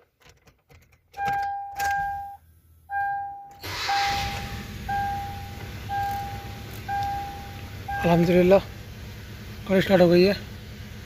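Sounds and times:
car engine starting and running: 0:00.0 - 0:11.0
dashboard warning chime: 0:01.2 - 0:08.7.

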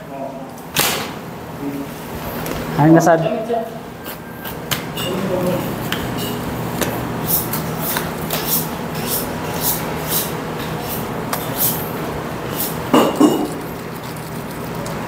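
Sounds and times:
steady low hum: 0:00.0 - 0:15.0
knife scraping and slicing meat: 0:12.5 - 0:15.0.

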